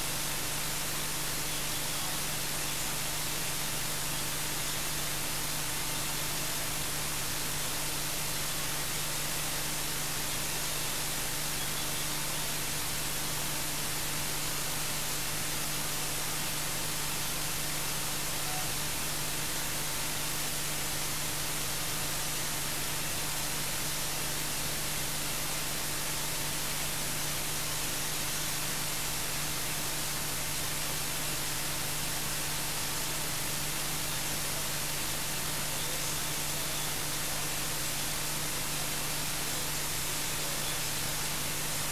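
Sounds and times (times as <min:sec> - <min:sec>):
electronic static hiss: 0:00.0 - 0:41.9.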